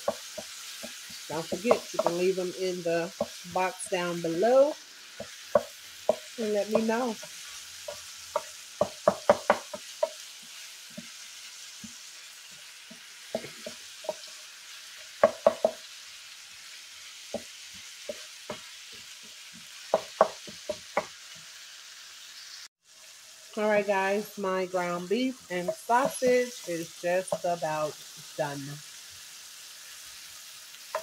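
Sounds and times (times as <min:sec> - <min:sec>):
spatula knocking on skillet: 0:00.0 - 0:02.4, 0:03.0 - 0:03.5, 0:05.0 - 0:11.2, 0:12.8 - 0:14.4, 0:15.1 - 0:15.9, 0:17.2 - 0:21.2
meat sizzling: 0:00.0 - 0:31.0.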